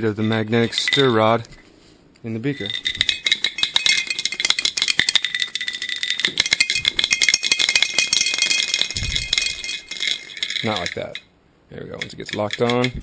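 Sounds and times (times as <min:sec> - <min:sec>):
stir bar clattering on glass: 0:02.6 - 0:11.3.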